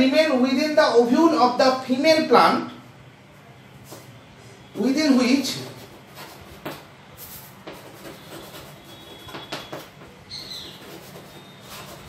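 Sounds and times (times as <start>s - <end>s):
chalk scratching on blackboard: 5.6s - 12.0s.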